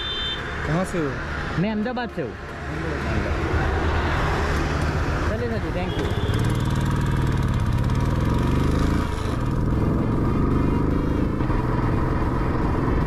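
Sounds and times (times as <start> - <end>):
motorcycle engine accelerating: 3.3 - 13.0.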